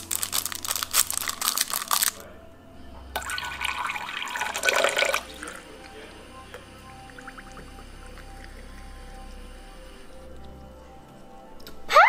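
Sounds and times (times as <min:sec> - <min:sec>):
crinkling: 0:00.0 - 0:02.4
water running into container: 0:03.2 - 0:10.0.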